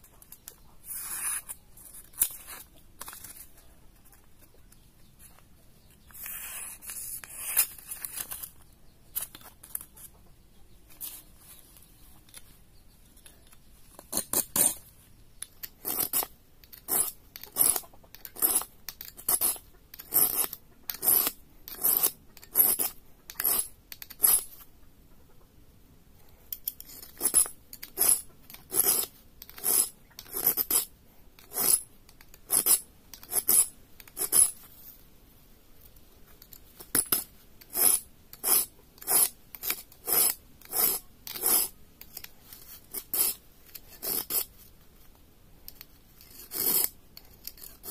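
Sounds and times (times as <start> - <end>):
knife scraping on sharpener: 0.2 - 3.6, 6.0 - 8.6, 14.0 - 14.8, 15.5 - 24.6, 26.6 - 34.7, 36.4 - 44.6, 45.7 - 47.9.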